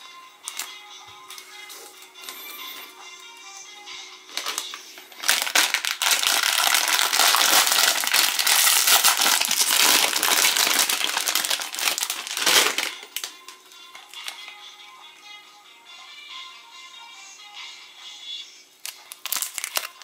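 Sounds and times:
plastic wrapper crinkling: 0.4s - 0.7s, 4.3s - 14.6s, 18.8s - 20.0s.

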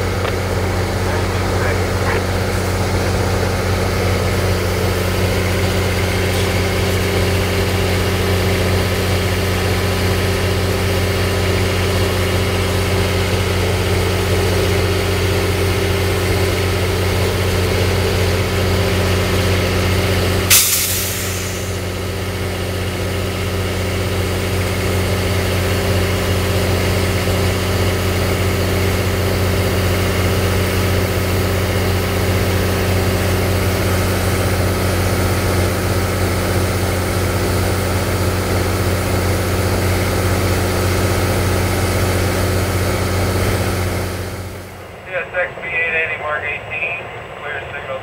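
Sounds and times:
diesel locomotive idling: 0.0s - 48.0s
air release hiss: 20.5s - 22.0s.

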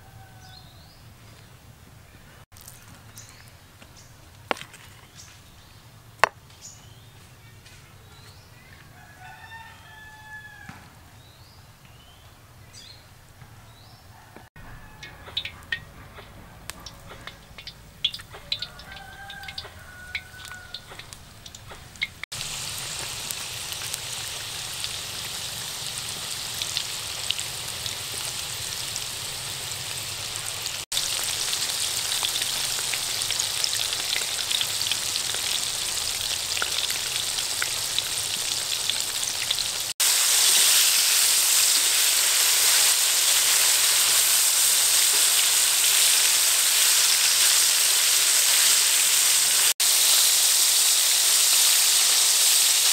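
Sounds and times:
food deep-frying in hot oil: 14.7s - 15.8s, 16.7s - 52.9s.

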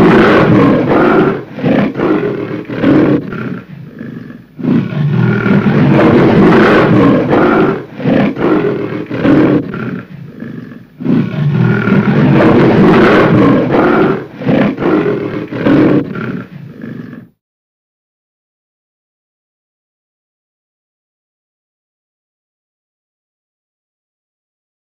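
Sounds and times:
lion roaring: 0.0s - 17.4s.

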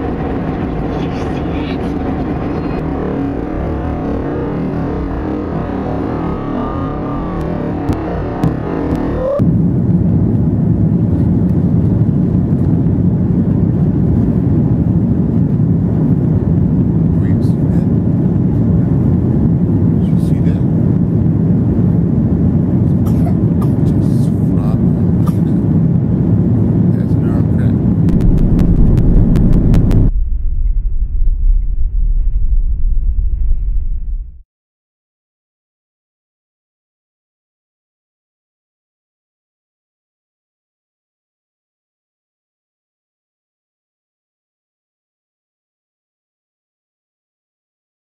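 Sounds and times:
airliner cabin engine rush: 0.0s - 30.2s.

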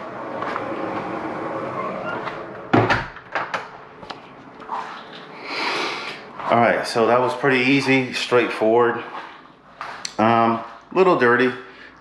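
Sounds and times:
door shutting thump: 2.2s - 3.7s.

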